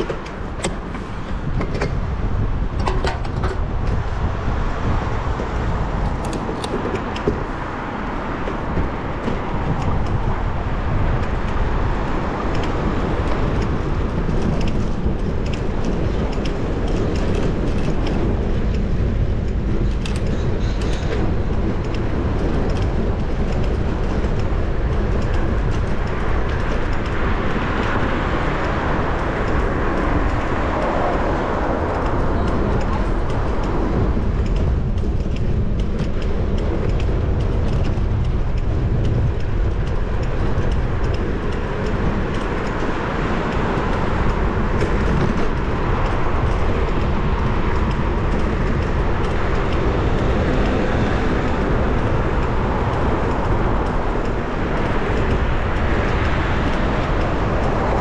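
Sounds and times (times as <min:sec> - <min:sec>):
sharp clicks or rattles: 0:00.0 - 0:04.1, 0:05.9 - 0:07.5, 0:12.4 - 0:58.0
road traffic passing: 0:00.0 - 0:58.0
wind on microphone: 0:00.0 - 0:58.0.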